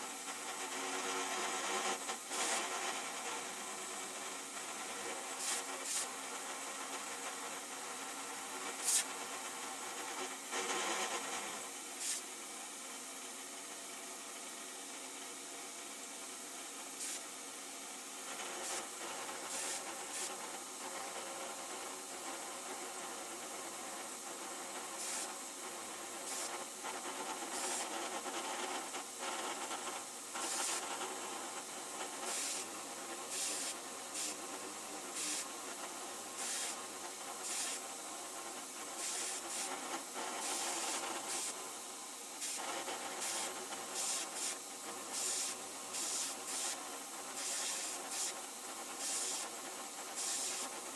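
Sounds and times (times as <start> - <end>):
compressed air hissing: 5.3 - 6.2, 8.7 - 9.2, 11.9 - 12.4, 17.0 - 17.3, 18.4 - 20.5, 24.9 - 25.5, 26.1 - 27.9, 30.0 - 50.9.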